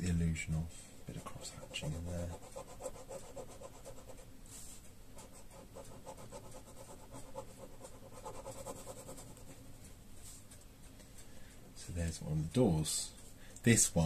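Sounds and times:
ballpoint pen scratching paper: 5.2 - 9.4.

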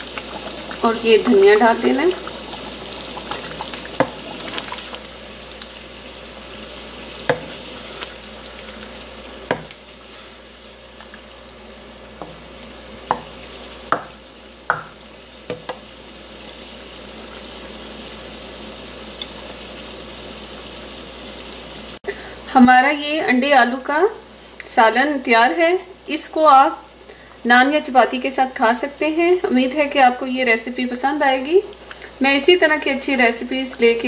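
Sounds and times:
faint sizzle: 0.0 - 34.0
spatula stirring thick gravy: 7.2 - 8.9
spatula knocking against pan: 7.3 - 7.5, 9.5 - 9.8, 13.1 - 15.8.

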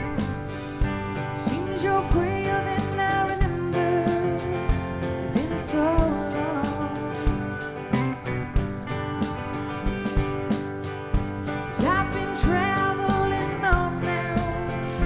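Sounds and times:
country song with guitar: 0.0 - 15.0
person singing: 1.3 - 7.6, 11.7 - 15.0.

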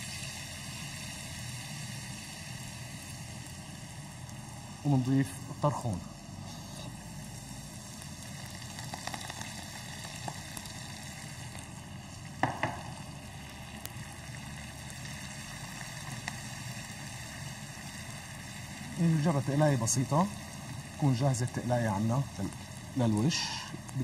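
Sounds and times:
herbs sizzling in a pan: 0.0 - 24.0
sharp knocks: 12.4 - 13.0.

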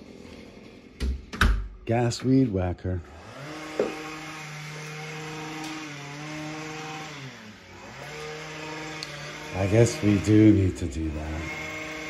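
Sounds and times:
string trimmer engine running: 3.1 - 12.0.

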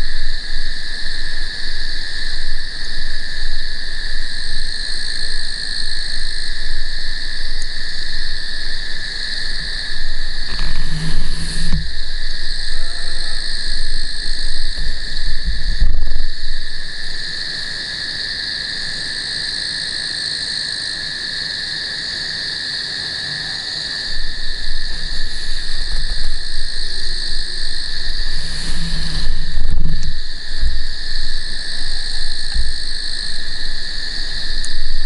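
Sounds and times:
frogs trilling: 0.0 - 35.0
low rumble: 10.0 - 16.9, 24.1 - 35.0.

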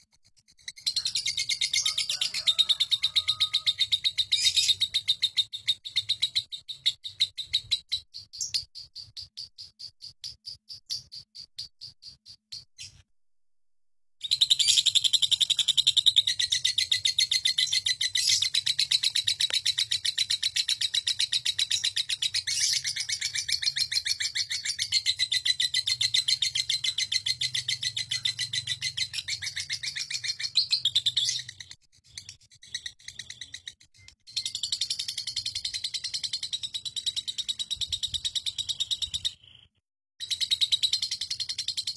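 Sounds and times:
lovebird chattering: 14.2 - 39.4.

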